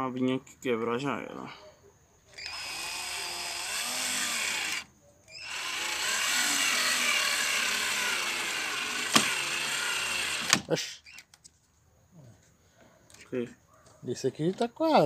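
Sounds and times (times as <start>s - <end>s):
cordless drill driving screws: 2.3s - 11.3s.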